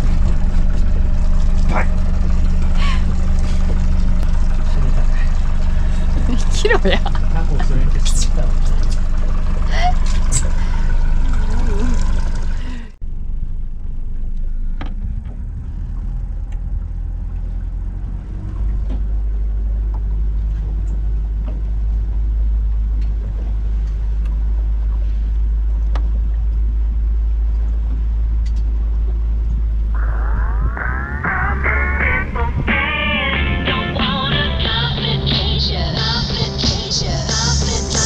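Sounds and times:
boat engine drone: 0.0s - 38.0s
wind rumble on microphone: 19.9s - 34.9s.

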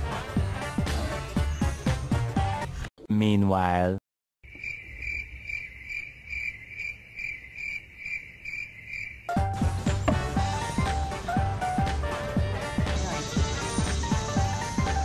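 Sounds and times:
crickets chirping: 4.4s - 9.4s
music with drum beats: 9.3s - 15.0s.

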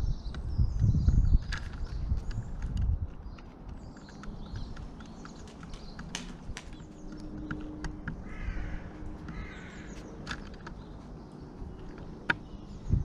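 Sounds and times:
beaks tapping on tray: 1.4s - 8.5s
bird calling: 3.8s - 13.0s.

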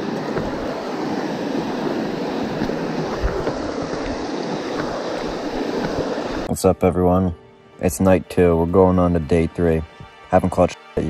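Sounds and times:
river water rushing over rocks: 0.0s - 6.5s
low bump: 0.0s - 6.6s.

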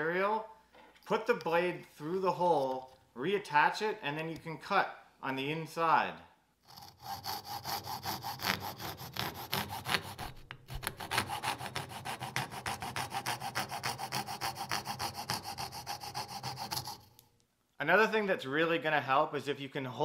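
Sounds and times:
coping saw cutting wood: 6.7s - 17.1s.

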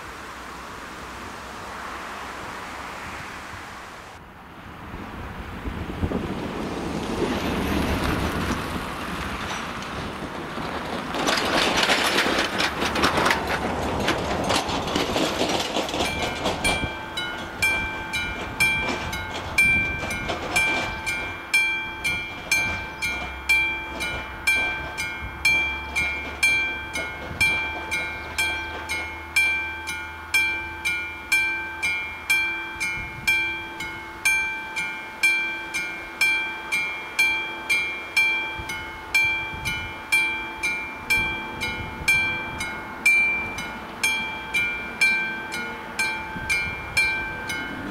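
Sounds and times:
car passing close: 0.0s - 38.3s
passing road traffic: 0.0s - 47.9s
level crossing electronic bell ringing: 16.2s - 47.8s.

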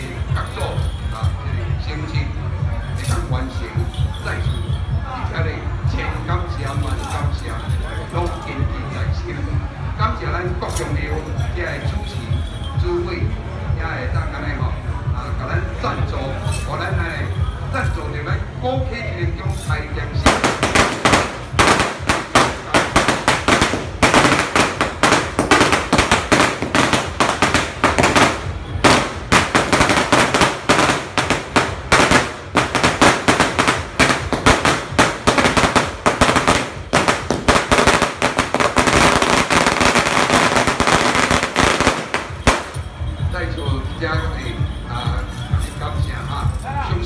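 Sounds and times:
firecrackers cracking: 20.2s - 43.0s.

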